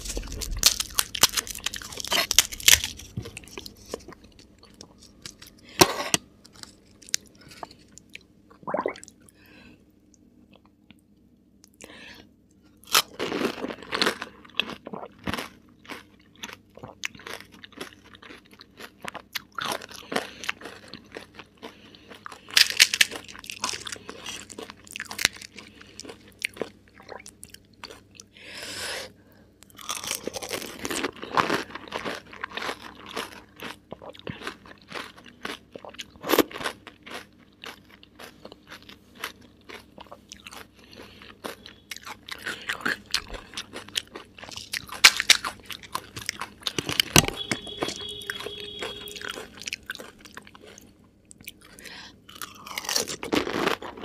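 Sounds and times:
crisp shells crunching in mouth: 0:00.0 - 0:08.3, 0:12.8 - 0:28.3, 0:29.6 - 0:54.0
wet chewing: 0:29.7 - 0:54.0.

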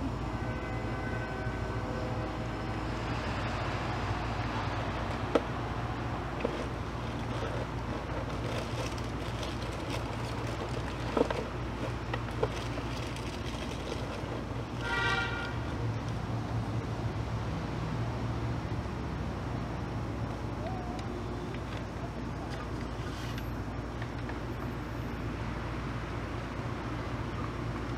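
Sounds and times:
low mechanical hum: 0:00.0 - 0:27.9
cardboard box handled: 0:06.4 - 0:14.5.

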